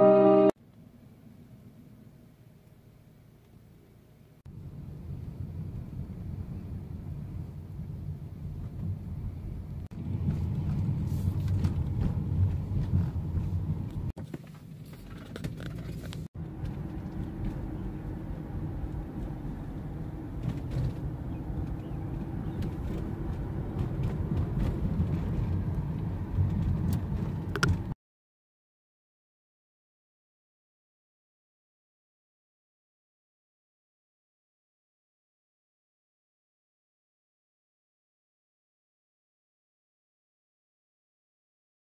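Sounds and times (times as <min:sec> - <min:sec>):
car engine and road rumble: 0:00.0 - 0:28.0.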